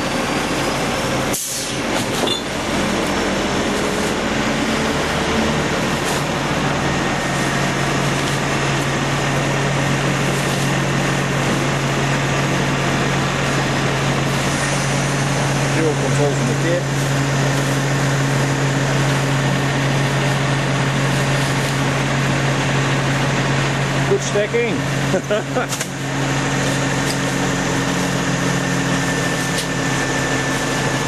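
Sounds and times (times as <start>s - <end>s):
diesel engine running: 0.0s - 31.0s
air hiss: 1.3s - 1.8s.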